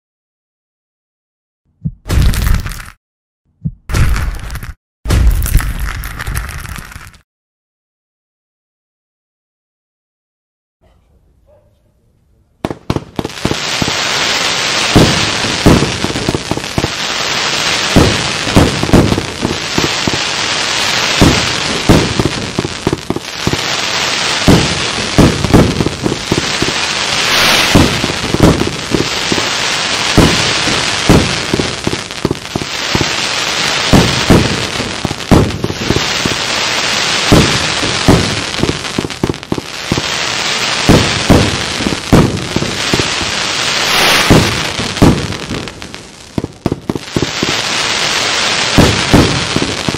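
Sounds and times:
fireworks shots bursting: 0:02.0 - 0:02.9, 0:03.9 - 0:07.2, 0:12.6 - 0:49.9
steady fireworks hiss: 0:12.6 - 0:49.9.

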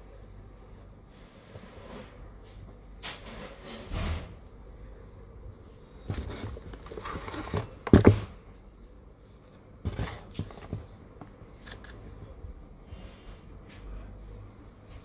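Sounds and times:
cardboard box rustling: 0:06.0 - 0:08.3, 0:09.8 - 0:11.9.

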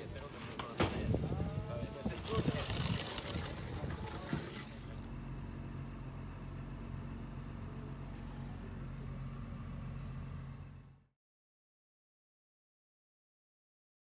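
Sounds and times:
engine idling: 0:00.0 - 0:11.1.

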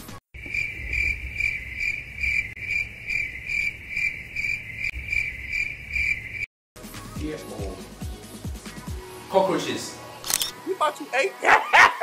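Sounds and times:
cricket chirping: 0:00.4 - 0:06.5.

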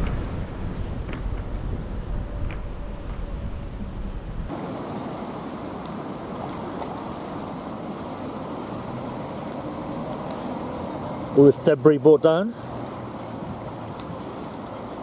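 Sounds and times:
flooded river rushing: 0:04.5 - 0:15.0.

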